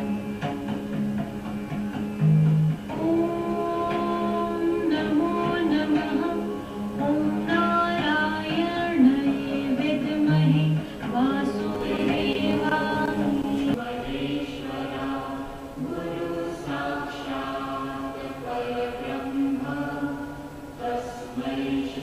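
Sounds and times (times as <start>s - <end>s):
voices chanting long notes: 0.0s - 22.0s.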